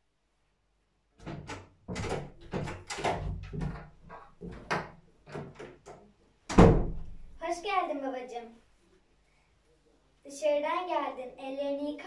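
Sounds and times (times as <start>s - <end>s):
door rattles and thumps: 1.2s - 7.4s
door bang: 6.5s - 7.2s.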